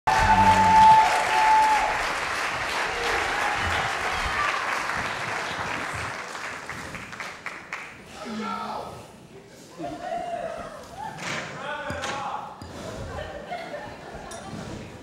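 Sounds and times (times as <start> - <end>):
audience applauding in a hall: 0.1 - 8.2.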